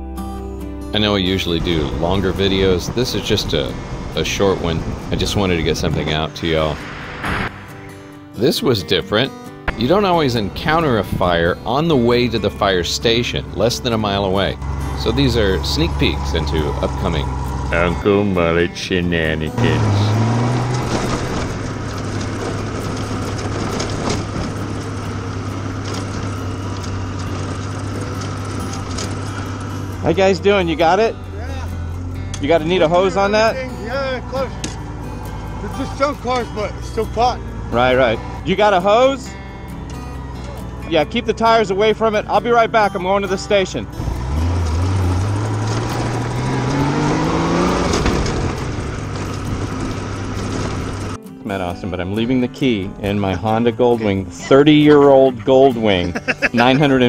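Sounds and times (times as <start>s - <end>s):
motorcycle engine running: 1.3s - 6.6s, 10.4s - 18.6s, 19.6s - 51.2s
wind and tyre noise on dirt: 19.8s - 30.0s, 44.0s - 51.2s.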